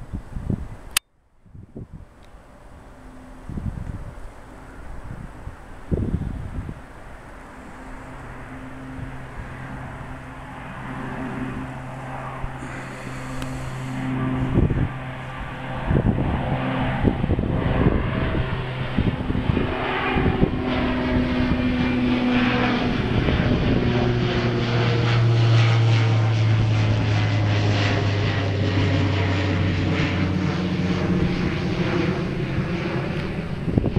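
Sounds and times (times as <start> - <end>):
turboprop plane droning overhead: 0.0 - 33.9.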